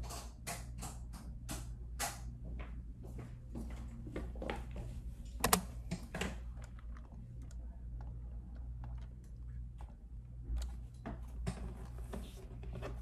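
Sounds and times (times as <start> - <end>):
low hum: 1.8 - 13.0
keyboard typing clicks: 5.3 - 10.8.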